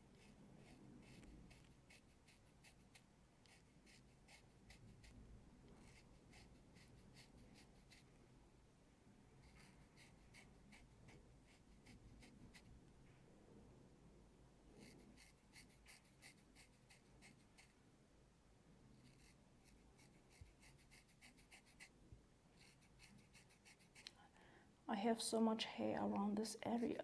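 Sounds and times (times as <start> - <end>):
razor scratching across skin: 0.0 - 5.2, 5.8 - 8.1, 9.5 - 12.7, 14.8 - 17.7, 19.0 - 21.9, 22.6 - 24.1.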